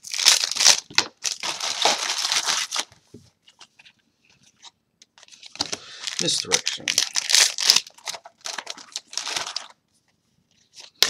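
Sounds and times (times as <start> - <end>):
foil wrapper crinkling and tearing: 0.0 - 3.0, 5.2 - 9.8.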